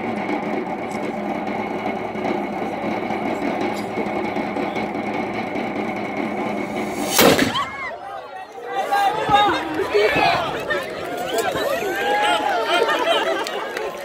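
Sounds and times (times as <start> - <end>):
crowd murmur: 0.0 - 14.0
cannon firing blast: 7.0 - 7.8.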